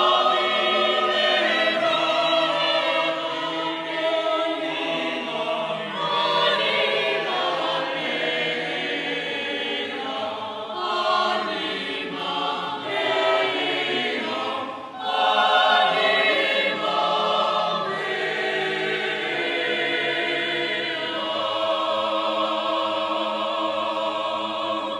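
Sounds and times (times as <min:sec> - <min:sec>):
choir singing: 0:00.0 - 0:24.9.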